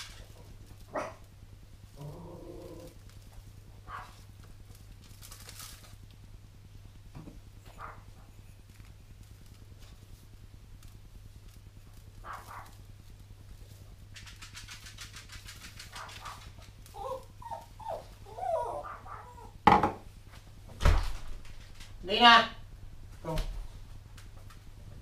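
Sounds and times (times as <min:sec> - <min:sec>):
faint steady hum: 0:00.0 - 0:25.0
dog whining: 0:16.0 - 0:19.6.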